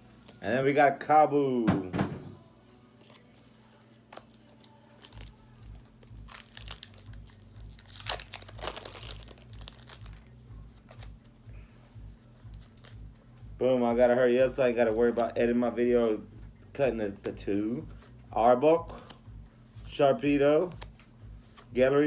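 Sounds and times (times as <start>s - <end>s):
foil pack crinkling: 4.2s - 11.1s.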